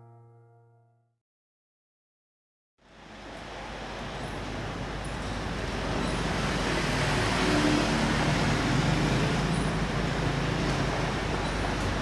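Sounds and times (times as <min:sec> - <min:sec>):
even rumble and hiss: 0:02.9 - 0:12.0.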